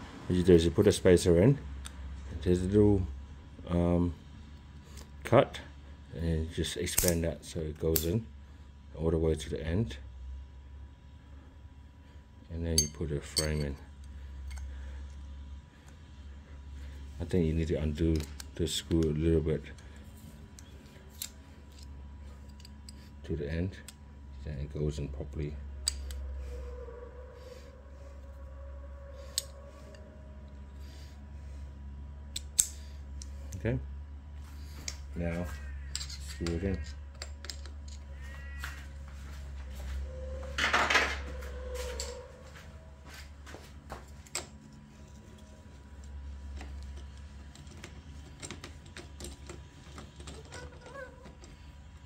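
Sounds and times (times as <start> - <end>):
steady low hum: 0.0 - 52.0
sharp metal click: 7.0 - 7.2.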